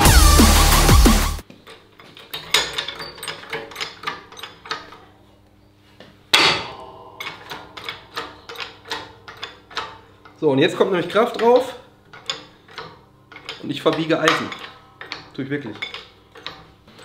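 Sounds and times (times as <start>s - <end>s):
loud metal clank with ring: 6.3s - 9.9s.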